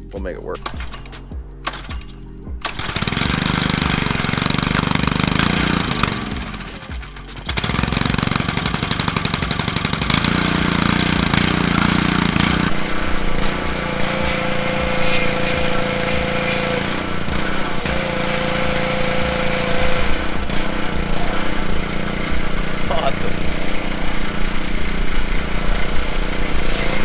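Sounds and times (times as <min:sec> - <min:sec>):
high whine: 0:00.0 - 0:27.0
small gasoline engine chugging: 0:00.6 - 0:27.0
foam spray hiss: 0:13.8 - 0:20.5, 0:26.5 - 0:27.0.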